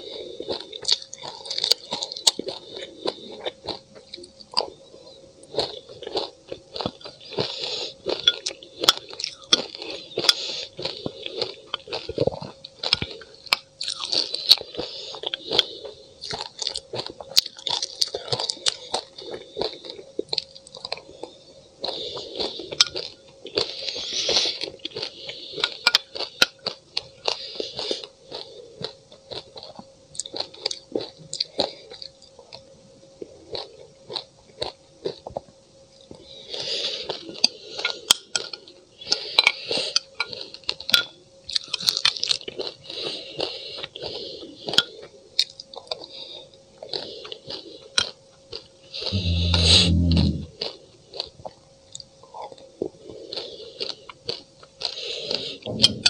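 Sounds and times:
crunching and chewing ice: 0:00.0 - 0:55.8.

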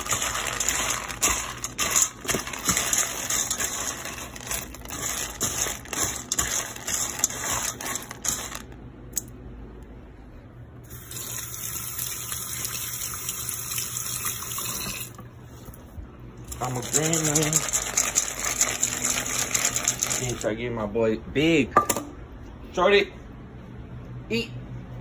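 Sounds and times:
dry kibble stirred in metal bowl: 0:00.0 - 0:08.8, 0:16.5 - 0:20.6.

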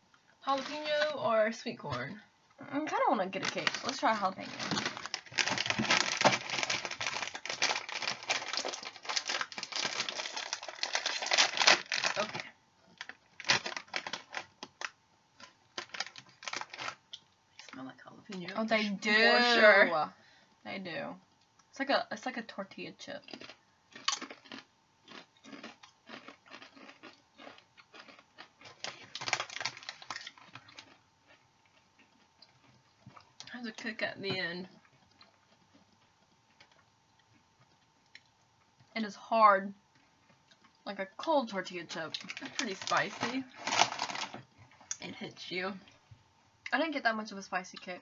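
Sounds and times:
plastic bag crinkling: 0:00.4 - 0:01.2, 0:03.2 - 0:17.8, 0:25.5 - 0:31.0, 0:42.0 - 0:44.8
crunching and chewing corn chips: 0:03.3 - 0:17.8, 0:23.2 - 0:33.6, 0:34.8 - 0:39.0, 0:41.9 - 0:45.0.

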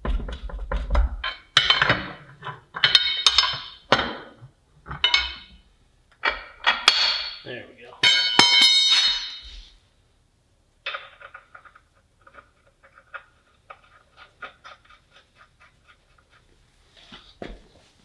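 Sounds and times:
pry bar clanging on concrete: 0:02.8 - 0:04.2, 0:04.9 - 0:05.6, 0:06.2 - 0:09.5.

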